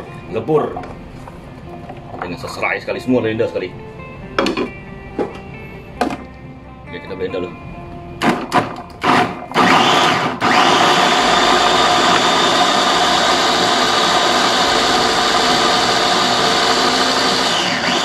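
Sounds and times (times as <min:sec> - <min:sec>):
food chopper motor running: 0:08.3 - 0:18.0.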